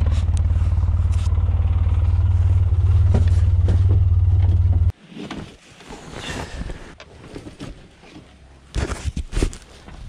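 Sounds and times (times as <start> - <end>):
vehicle engine rumbling: 0.0 - 4.9.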